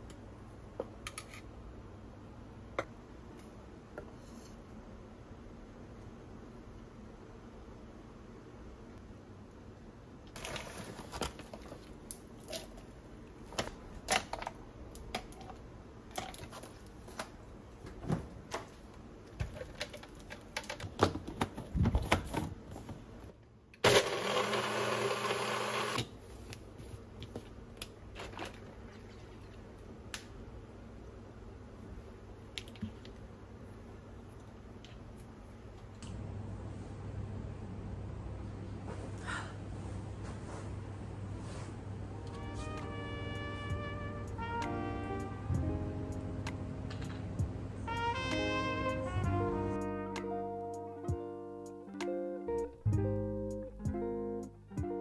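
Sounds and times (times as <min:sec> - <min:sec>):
blender running: 0:23.8 - 0:26.0.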